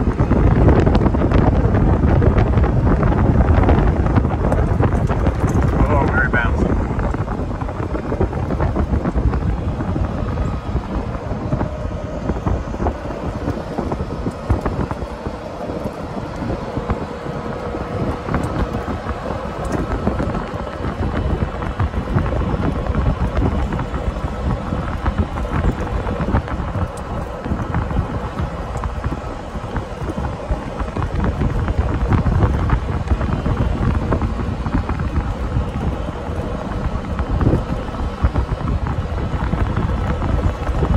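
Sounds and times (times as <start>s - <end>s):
golf cart rumbling: 0.0s - 40.9s
wind buffeting microphone: 0.0s - 40.9s.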